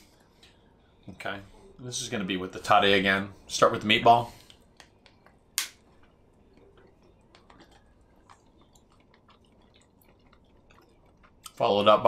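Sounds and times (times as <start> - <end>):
quiet chewing: 4.4 - 11.6.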